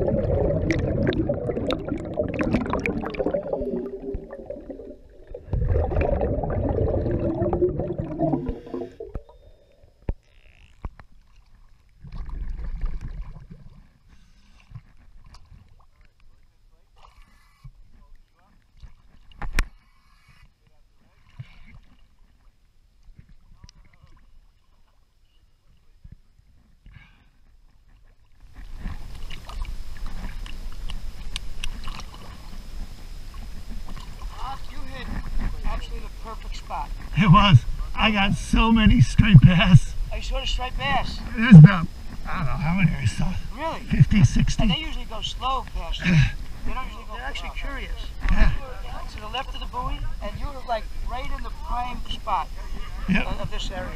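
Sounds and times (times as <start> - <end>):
low rumble: 0.0 - 9.8
regulator bubbles gurgling underwater: 0.0 - 10.1
water sloshing: 0.0 - 16.4.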